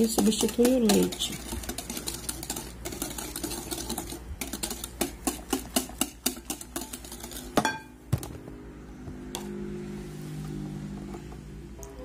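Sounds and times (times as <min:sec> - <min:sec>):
whisk clicking against glass bowl: 0:00.0 - 0:07.9.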